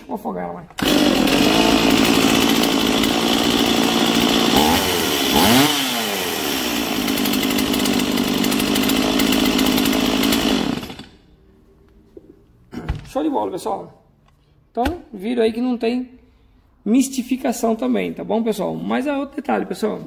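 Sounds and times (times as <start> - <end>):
chainsaw running: 0.8 - 11.3.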